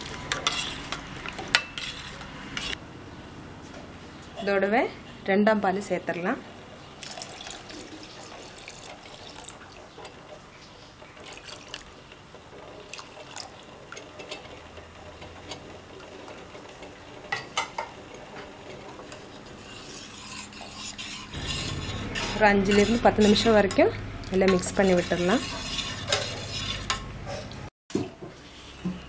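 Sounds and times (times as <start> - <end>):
liquid pouring into pot: 7.0 - 9.9, 11.2 - 11.9, 12.8 - 13.5
ladle stirring thick mix: 7.0 - 15.3, 18.1 - 23.6.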